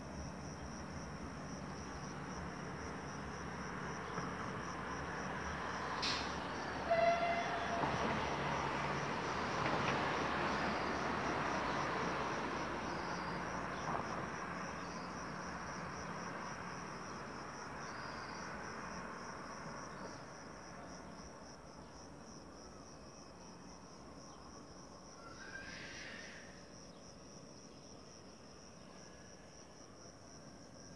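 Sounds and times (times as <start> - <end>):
insects chirring: 0.0 - 30.9
electric train rumble: 0.8 - 14.4.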